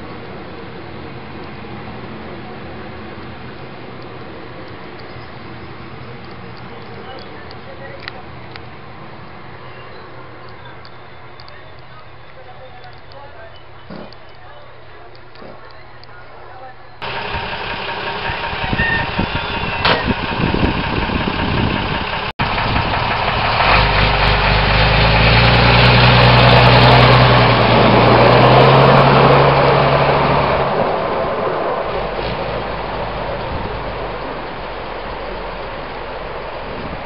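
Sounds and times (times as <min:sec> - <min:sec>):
diesel engine running: 0:17.0 - 0:37.0
engine knocks and clatter: 0:17.0 - 0:37.0.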